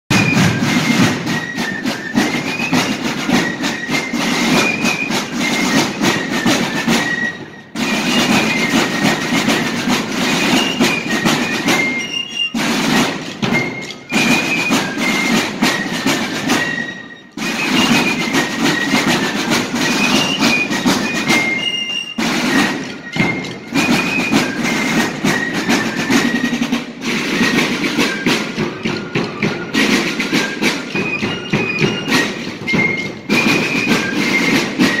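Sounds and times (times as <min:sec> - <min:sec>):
field drums playing rudiments: 0:00.1 - 0:35.0.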